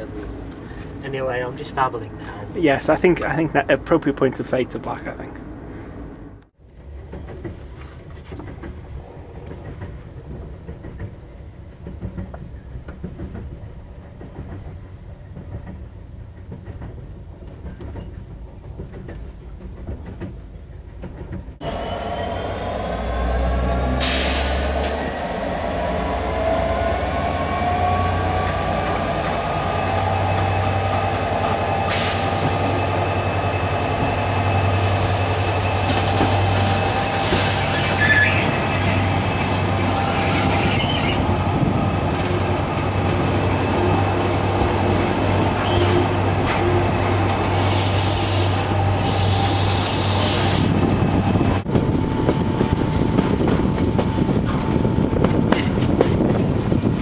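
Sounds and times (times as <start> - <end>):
train wheels rumbling on rails: 0.0 - 57.0
squealing wheels and brakes: 21.6 - 25.7, 33.6 - 41.3, 45.4 - 46.8.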